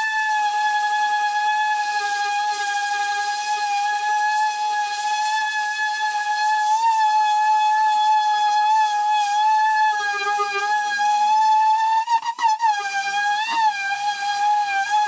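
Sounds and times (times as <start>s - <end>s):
electric sander whining: 8.3s - 11.9s, 12.6s - 15.0s.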